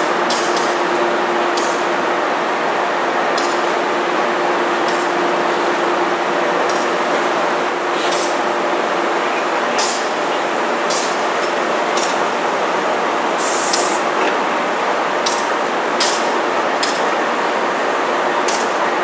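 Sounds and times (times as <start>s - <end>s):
passenger train cars rumbling: 0.0s - 19.0s
short air hisses: 13.4s - 14.0s.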